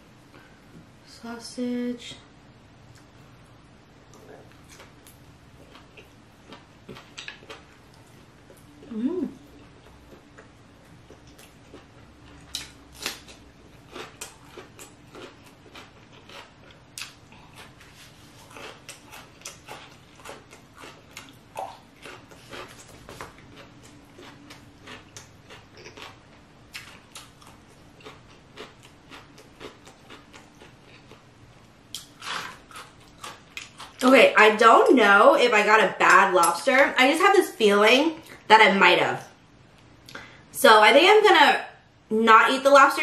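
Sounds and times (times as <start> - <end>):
person chewing and lip-smacking: 4.0 - 31.3, 31.9 - 34.0.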